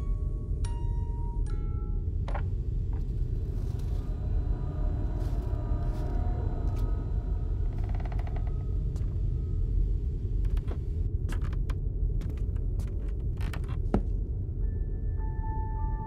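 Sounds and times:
low rumbling drone: 0:00.0 - 0:11.2.

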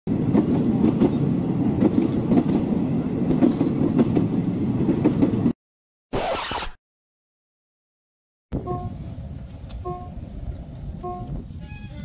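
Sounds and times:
train rumbling on rails: 0:00.1 - 0:05.6, 0:08.6 - 0:12.0.

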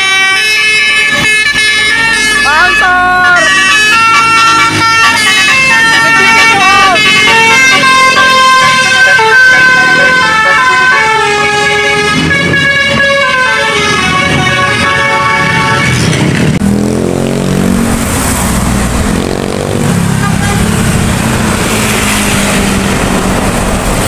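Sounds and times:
bus multi-tone air horn tune: 0:00.0 - 0:16.6, 0:20.1 - 0:20.8
passing engine: 0:00.0 - 0:24.0.

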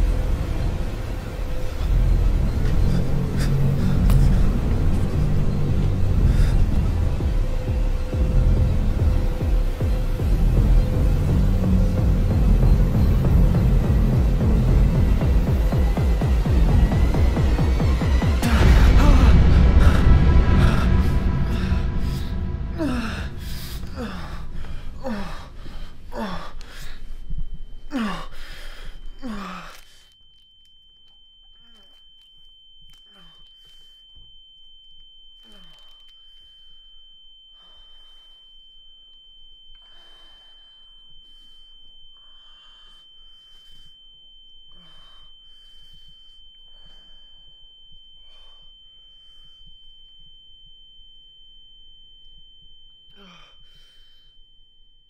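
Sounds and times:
low pulsing sound with falling pitch: 0:00.0 - 0:25.0
man breathing heavily and gasping: 0:00.0 - 0:30.2
steady high ringing tone: 0:00.0 - 0:55.0.

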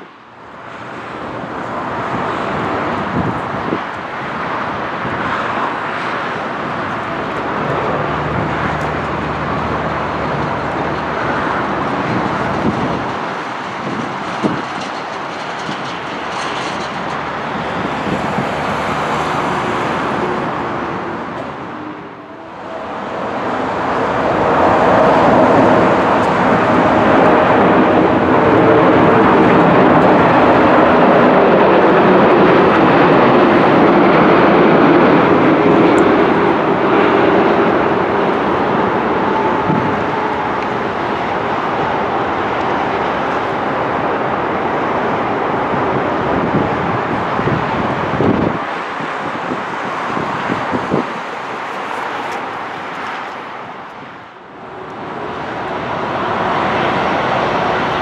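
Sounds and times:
jet engines rumbling: 0:00.0 - 0:58.0
humming engine tones: 0:04.7 - 0:48.8.

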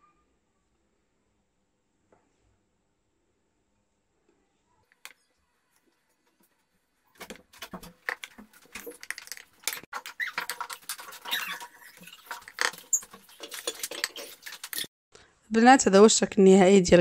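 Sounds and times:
wooden spatula scraping a ceramic plate: 0:07.2 - 0:14.9.

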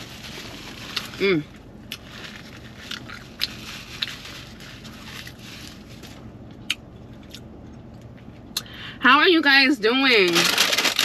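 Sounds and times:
person chewing food: 0:01.8 - 0:04.6.

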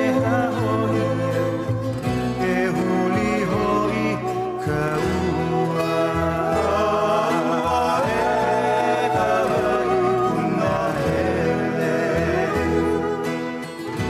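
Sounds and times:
song with singing and instruments: 0:00.0 - 0:14.0.

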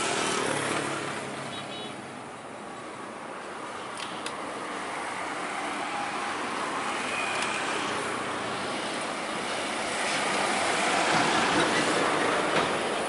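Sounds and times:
road traffic hiss: 0:00.0 - 0:13.0.

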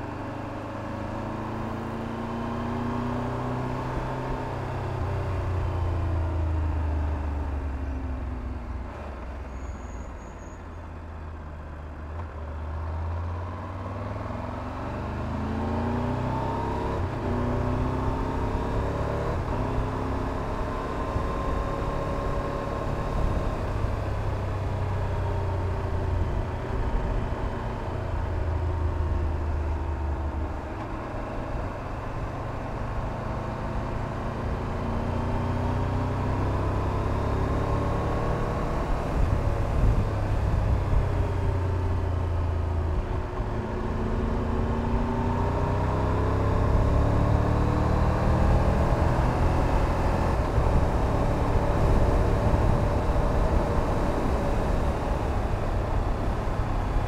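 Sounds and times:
motorcycle engine revving: 0:29.8 - 0:57.0
wind rumble on microphone: 0:38.4 - 0:43.6, 0:48.3 - 0:57.0.

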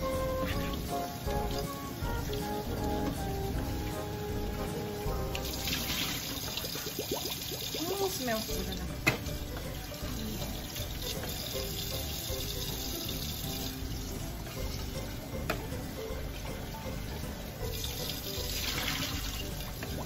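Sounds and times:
sauce sizzling and bubbling: 0:00.0 - 0:20.0.

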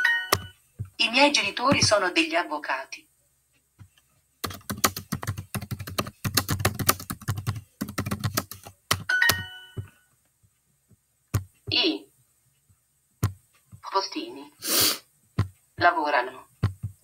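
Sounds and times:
rapid keyboard typing: 0:00.3 - 0:00.6, 0:04.4 - 0:09.9, 0:16.5 - 0:17.0
electronic chime: 0:09.1 - 0:10.0.

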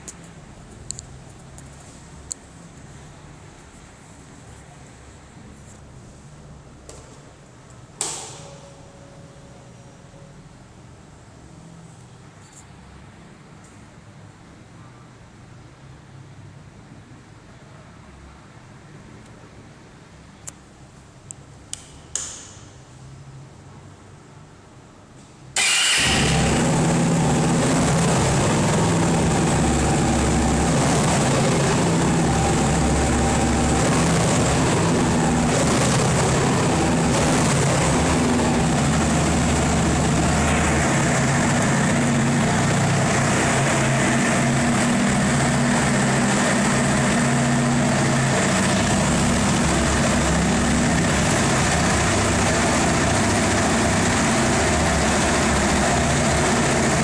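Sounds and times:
motorcycle engine starting and running: 0:07.9 - 0:09.1, 0:25.5 - 0:57.0.

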